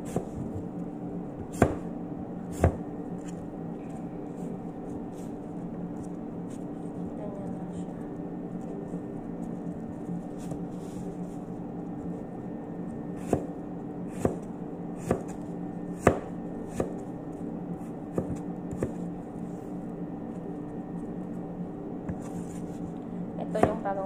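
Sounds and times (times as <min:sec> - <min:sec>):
knife chopping on cutting board: 0:00.0 - 0:00.6, 0:01.4 - 0:01.9, 0:02.5 - 0:02.8, 0:13.2 - 0:13.5, 0:14.1 - 0:15.4, 0:16.0 - 0:17.0, 0:18.1 - 0:19.0, 0:23.6 - 0:23.8
steady low hum: 0:00.0 - 0:24.0.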